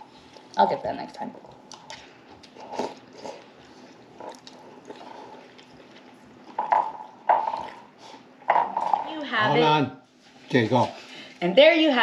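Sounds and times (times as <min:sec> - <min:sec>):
faint chewing: 0:00.0 - 0:08.8.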